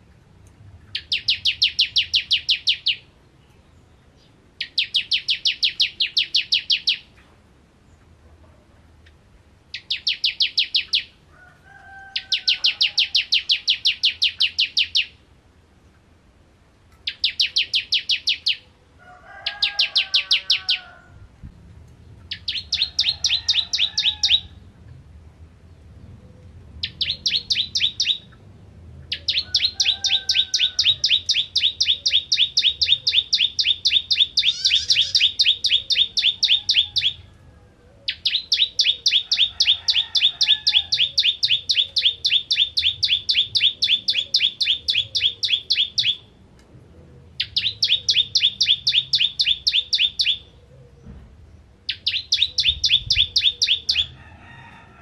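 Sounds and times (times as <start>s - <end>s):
bird singing rapid repeated notes: 0.8s - 7.2s, 9.0s - 11.2s, 12.2s - 15.3s, 17.0s - 18.8s, 22.0s - 24.7s, 26.8s - 28.4s, 29.0s - 37.2s, 38.1s - 46.5s, 47.3s - 50.5s, 51.6s - 54.2s.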